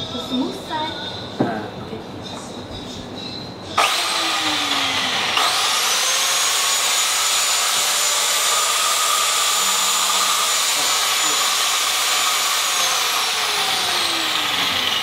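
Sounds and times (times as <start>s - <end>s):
biscuit jointer motor whining: 3.8s - 15.0s.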